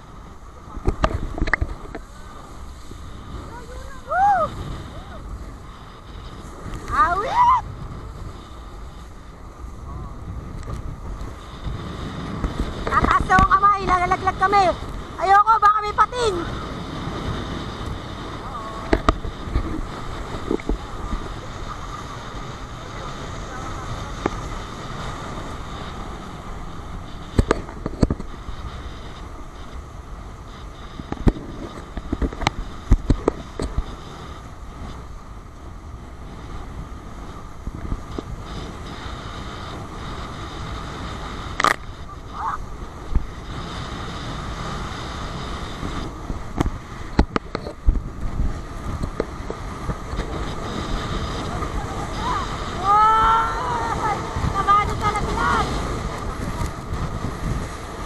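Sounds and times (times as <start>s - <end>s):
water rushing: 0.0s - 58.0s
wind buffeting microphone: 0.0s - 58.0s.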